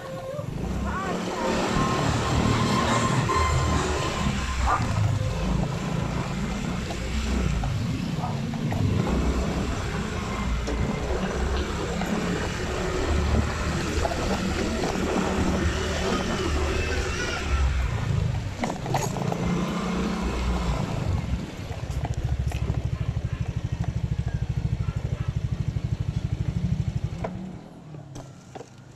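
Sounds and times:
motorcycle riding: 0.0s - 28.9s
road and wind noise: 0.0s - 28.9s
motorcycle engine idling: 21.5s - 27.2s.

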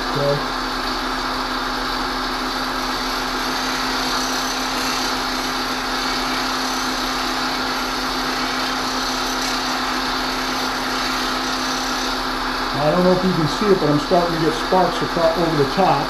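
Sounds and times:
bench grinder motor hum: 0.0s - 16.0s
hiss of steel being ground: 2.9s - 12.5s.

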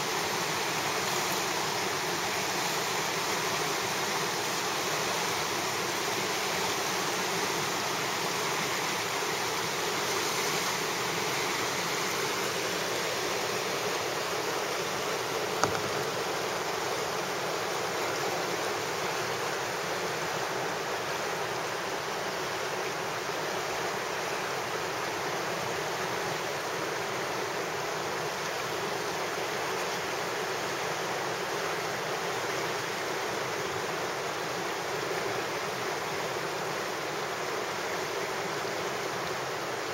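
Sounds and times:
river water rushing over rocks: 0.0s - 39.9s.

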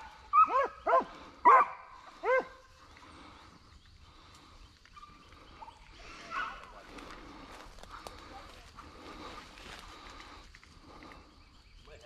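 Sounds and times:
dog barking: 0.0s - 2.6s.

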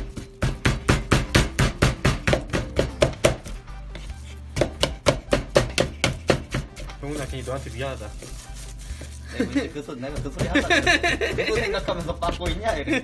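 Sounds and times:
pestle pounding in mortar: 0.0s - 3.6s, 4.5s - 7.0s, 10.1s - 11.5s
background music: 0.0s - 13.0s.

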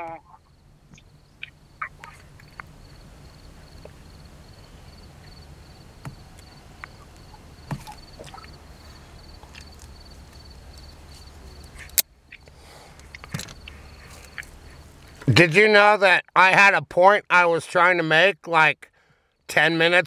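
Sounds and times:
crickets chirping: 0.0s - 15.3s
steady low hum: 0.0s - 15.5s.

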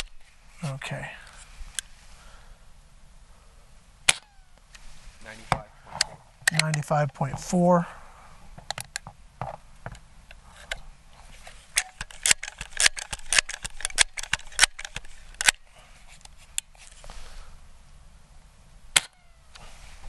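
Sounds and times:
air pistol shot: 4.1s - 4.3s.

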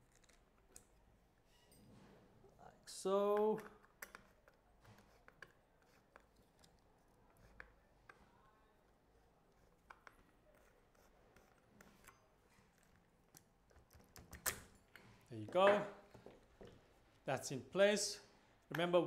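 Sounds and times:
faint small clicks and rubs: 0.0s - 2.1s, 3.6s - 15.2s.

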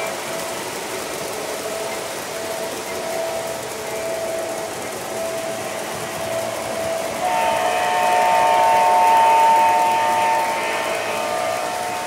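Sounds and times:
toy trains running on track: 0.0s - 12.0s
model locomotive horn: 4.1s - 12.0s.

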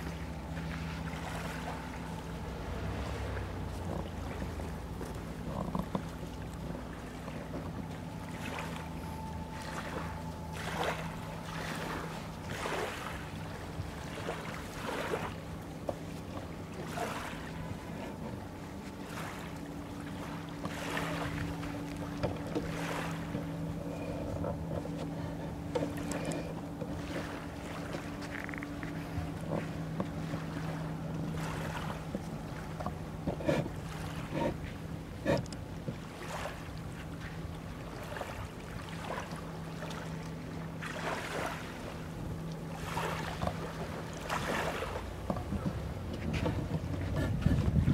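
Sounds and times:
distant ferry engine hum: 0.0s - 47.9s
higher engine hum: 0.0s - 47.9s
small waves lapping: 0.0s - 47.9s.

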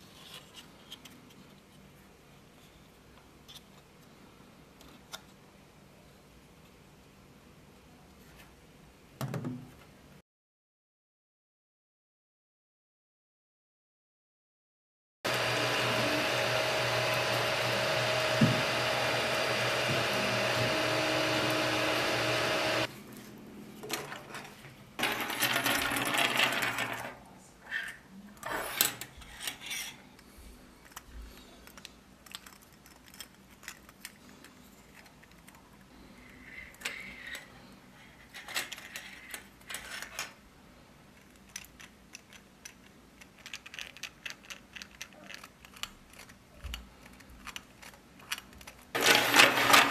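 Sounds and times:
three-d printer whirring: 15.3s - 22.9s, 49.0s - 49.9s
plastic clicks and rattles: 30.8s - 35.6s, 41.2s - 49.9s.

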